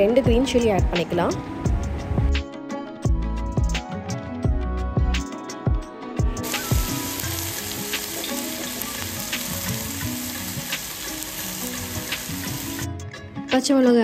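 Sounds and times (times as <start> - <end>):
background music: 0.0 - 14.0
onions sizzling in hot oil: 6.4 - 12.9.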